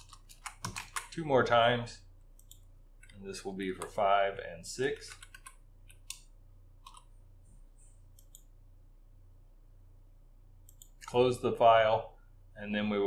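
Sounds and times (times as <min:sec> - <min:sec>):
keyboard typing clicks: 0:00.0 - 0:01.1, 0:05.0 - 0:07.1, 0:08.1 - 0:08.5, 0:10.6 - 0:11.1
low steady hum: 0:00.0 - 0:13.0.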